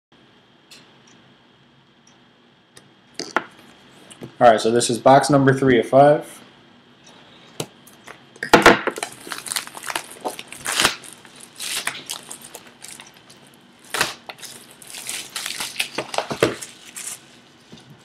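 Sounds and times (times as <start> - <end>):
plastic shrink wrap crinkling: 8.9 - 18.0.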